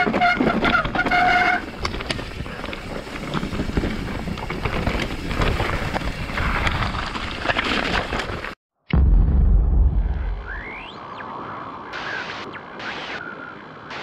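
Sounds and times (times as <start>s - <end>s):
bike tyre roar on dirt: 0.0s - 8.6s.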